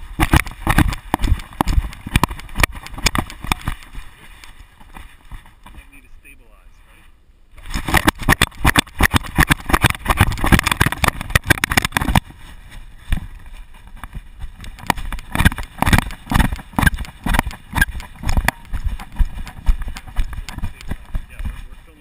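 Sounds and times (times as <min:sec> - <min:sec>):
camera rattling against mount: 0:00.0 - 0:05.8, 0:07.6 - 0:12.4, 0:13.1 - 0:21.6.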